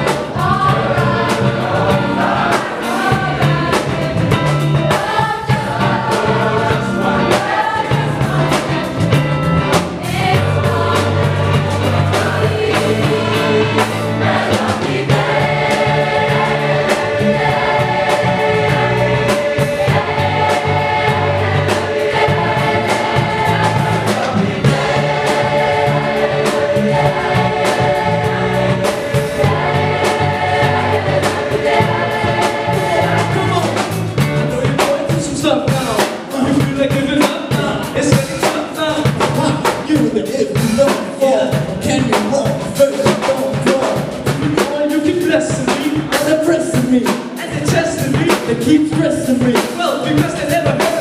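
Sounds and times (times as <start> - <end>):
choir singing held chords: 0.0 - 34.9.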